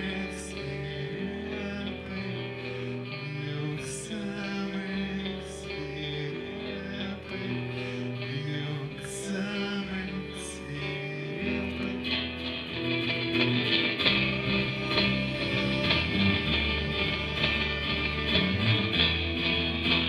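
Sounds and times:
bass line: 0.0 - 20.0
live rock band playing: 11.8 - 20.0.

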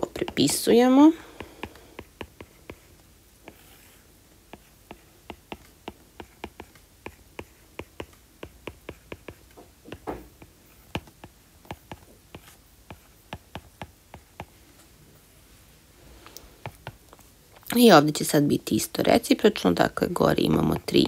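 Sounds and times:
stylus tapping on tablet screen: 1.2 - 3.6, 4.5 - 14.6.

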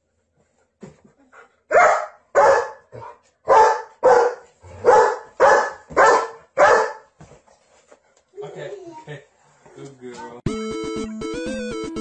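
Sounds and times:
dog barking: 1.7 - 7.1.

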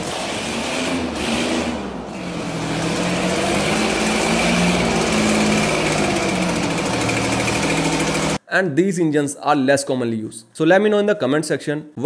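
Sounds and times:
engine running and revving: 0.0 - 8.4.

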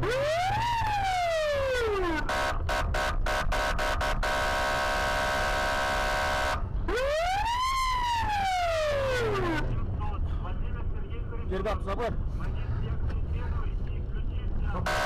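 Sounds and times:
police siren: 0.0 - 2.6, 3.8 - 9.7
low vehicle rumble: 0.0 - 15.0.

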